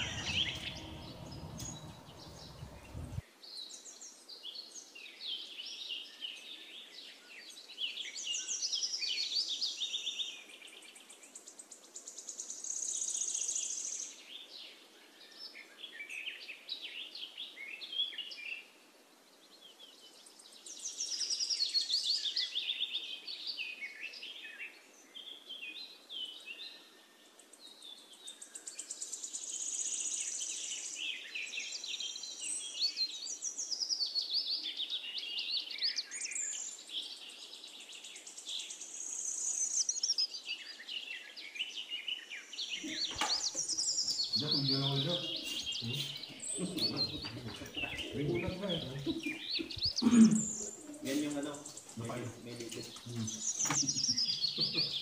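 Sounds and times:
birds singing and trilling: 0.0s - 3.2s, 27.6s - 55.0s.

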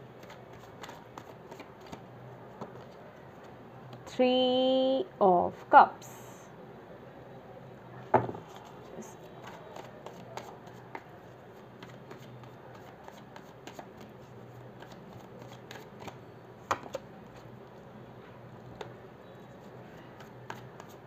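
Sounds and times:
cards being shuffled: 0.2s - 2.0s, 11.8s - 14.2s, 14.8s - 17.0s.

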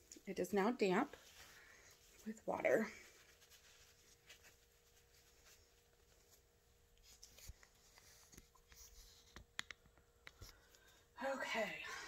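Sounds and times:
paper towel rustling: 0.9s - 9.2s.

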